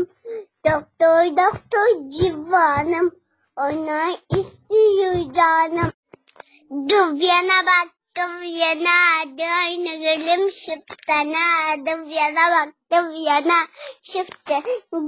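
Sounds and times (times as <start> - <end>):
young girl singing: 0.0 - 6.0, 6.6 - 15.0.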